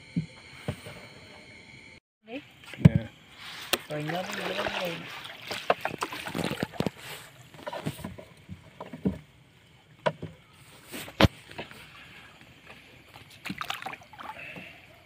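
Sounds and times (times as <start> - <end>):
fishing net hauled over boat: 2.6 - 9.4
water splashing and dripping: 3.4 - 7.6, 12.4 - 14.8.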